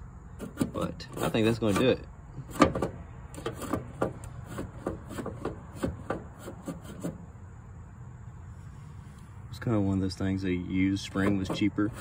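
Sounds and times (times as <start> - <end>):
light irregular clicks and scrapes: 0.4 - 7.2.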